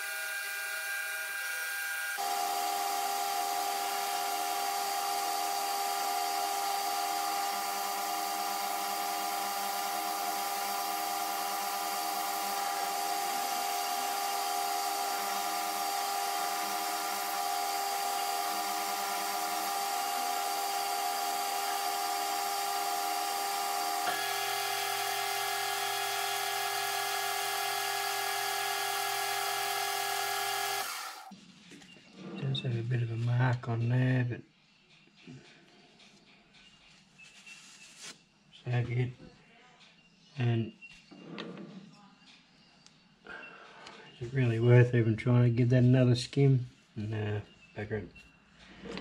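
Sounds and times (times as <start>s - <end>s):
metal lathe whining: 0.0s - 31.3s.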